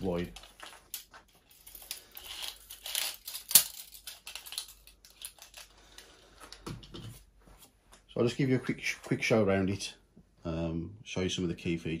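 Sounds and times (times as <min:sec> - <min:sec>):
rustling crinkling handling noises: 0:00.0 - 0:09.4.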